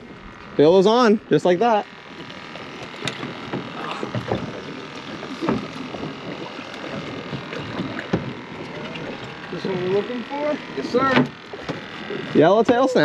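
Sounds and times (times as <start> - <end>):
waves slapping boat hull: 0.0 - 13.0.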